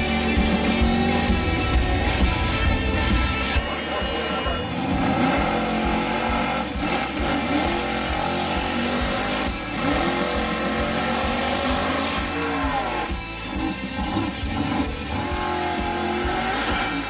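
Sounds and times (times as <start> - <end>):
drag car engine revving hard: 0.0 - 17.0.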